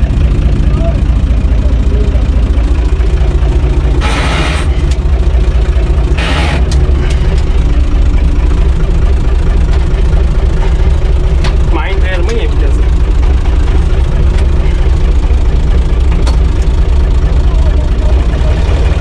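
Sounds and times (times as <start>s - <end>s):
tractor diesel engine running: 0.0s - 19.0s.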